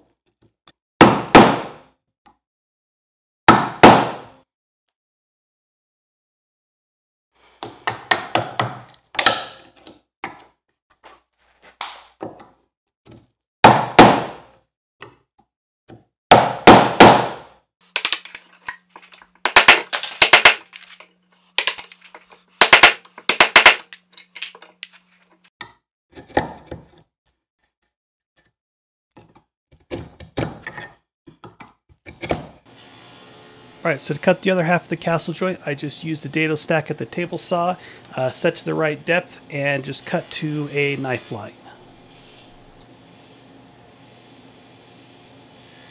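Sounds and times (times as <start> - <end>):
mallet striking chisel into wood: 3.5 - 4.3, 7.8 - 9.6, 13.7 - 14.4, 16.3 - 17.4, 22.6 - 23.8.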